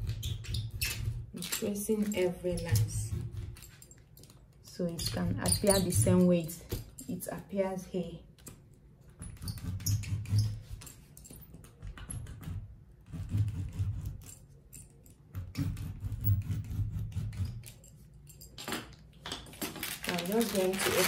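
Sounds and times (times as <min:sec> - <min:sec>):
paper rustle: 0:19.6 - 0:21.0.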